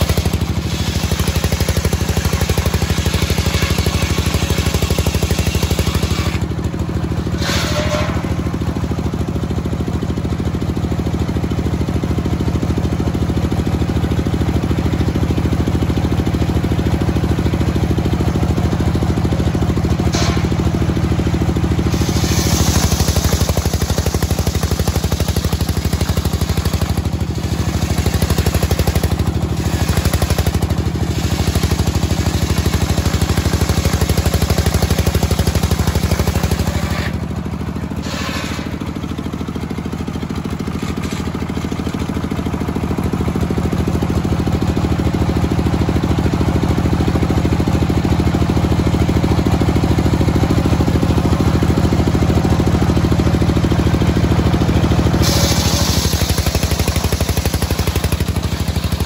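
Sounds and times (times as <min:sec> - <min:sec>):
circular saw cutting log: 0:00.0 - 0:08.9, 0:20.1 - 0:39.1, 0:55.1 - 0:59.0
engine running: 0:00.0 - 0:59.0.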